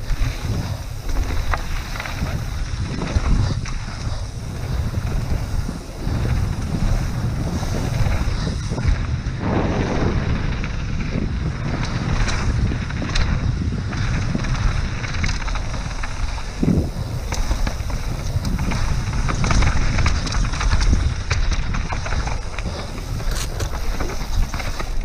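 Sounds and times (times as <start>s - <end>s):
bike knocks and rattles: 0.0s - 25.0s
wind buffeting microphone: 0.0s - 25.0s.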